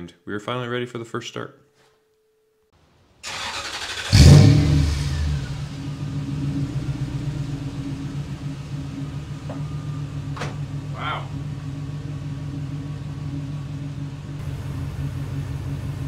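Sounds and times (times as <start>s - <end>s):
engine starting and idling: 3.2s - 16.0s.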